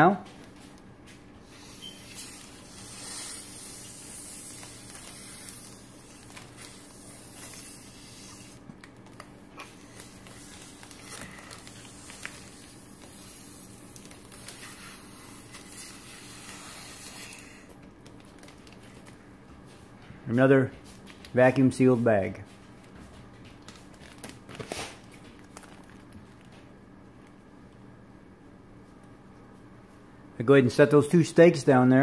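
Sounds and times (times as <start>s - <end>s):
air sucked through straw hissing: 1.5s - 8.6s, 9.8s - 17.7s
plastic bag crinkling: 1.5s - 19.2s, 23.6s - 26.7s.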